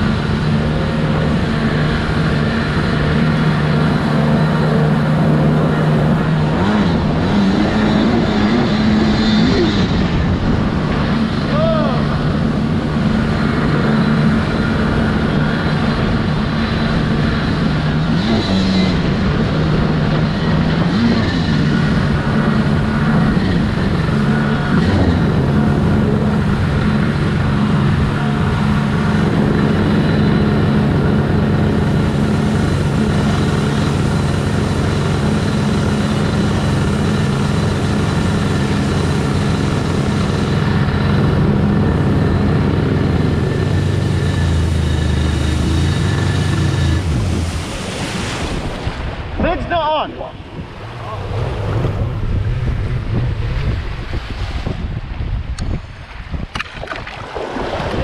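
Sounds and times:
jet ski engine running: 0:00.0 - 0:58.0
water rushing and spray: 0:00.0 - 0:58.0.

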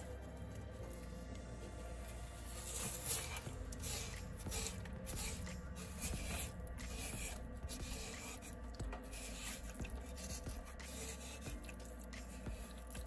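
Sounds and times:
scrubber scratching porcelain: 0:02.4 - 0:13.0.

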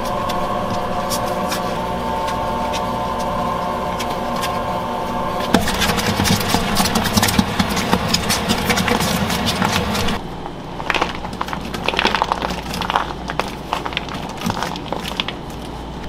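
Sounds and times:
dough mixer motor hum: 0:00.0 - 0:10.2
dough hook slapping dough: 0:05.4 - 0:10.2.

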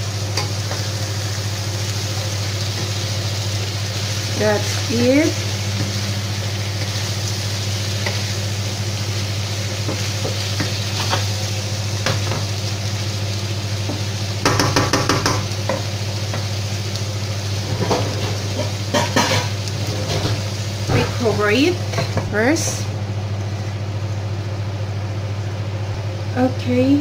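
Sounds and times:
food sizzling in a frying pan: 0:00.0 - 0:27.0
steady low hum: 0:00.0 - 0:27.0
spatula knocking against pan: 0:14.4 - 0:16.4.

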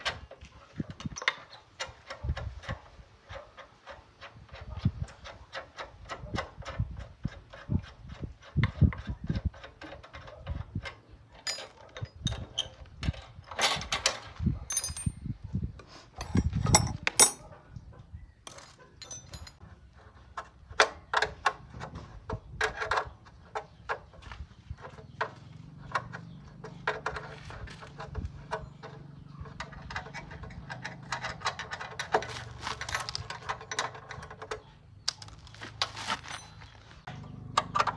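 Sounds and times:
hand tools tapping on metal: 0:01.0 - 0:15.2, 0:16.2 - 0:17.5, 0:24.8 - 0:37.9.

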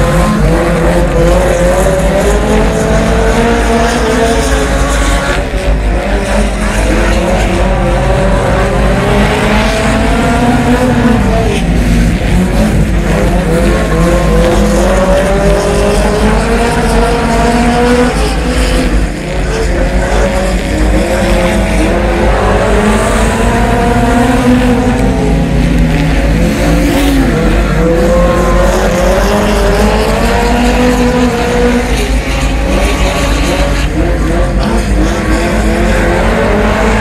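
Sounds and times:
race car engine revving: 0:00.0 - 0:37.0.

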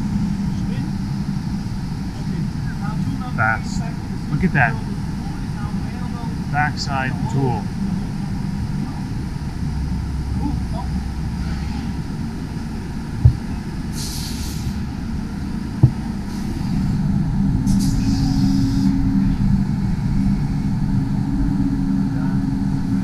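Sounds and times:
machine hum with held tone: 0:00.0 - 0:14.0, 0:14.6 - 0:23.0
short hisses: 0:14.0 - 0:14.8.

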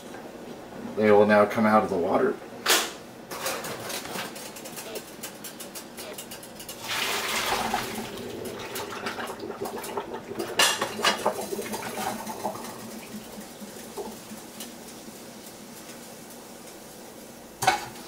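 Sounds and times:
water rushing: 0:06.8 - 0:14.2.

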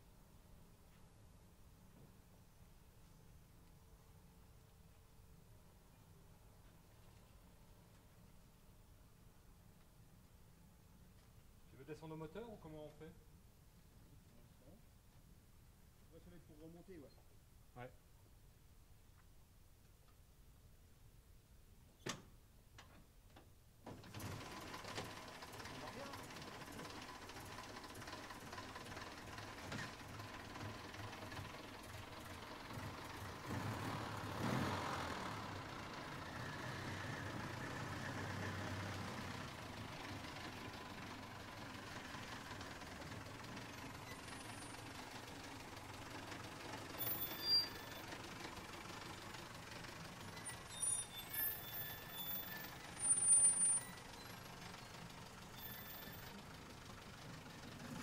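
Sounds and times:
car rumbling low: 0:24.0 - 0:58.0
high-pitched squeaks: 0:47.0 - 0:48.0, 0:50.3 - 0:54.4.

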